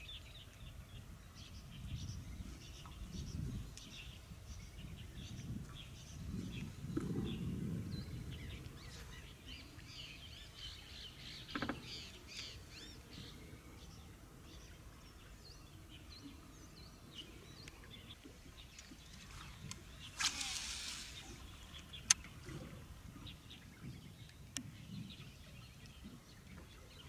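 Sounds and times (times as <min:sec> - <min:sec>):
small birds chirping and trilling: 0:00.0 - 0:27.0.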